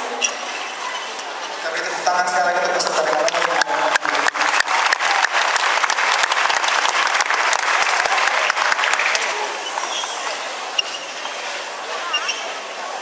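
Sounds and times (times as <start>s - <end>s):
audience applauding: 2.8s - 9.9s.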